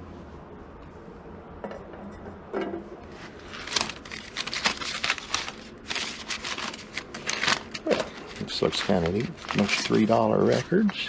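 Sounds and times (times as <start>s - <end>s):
records flipped through by hand: 3.2s - 11.0s.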